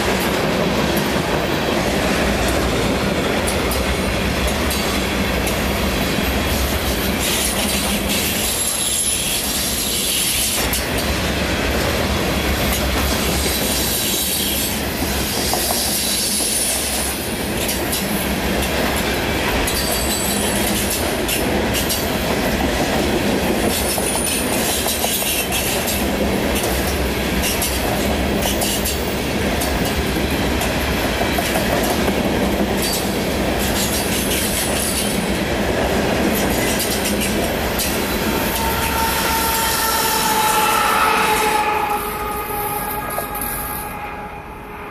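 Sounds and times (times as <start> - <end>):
high-pitched wheel squeal: 38.1 - 44.9.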